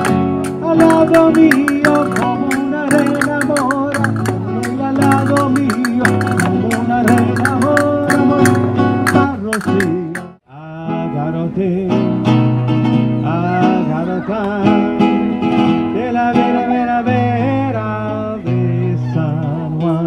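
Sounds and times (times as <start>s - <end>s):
ornamented singing voice: 0.0s - 12.2s
acoustic guitar: 0.0s - 20.0s.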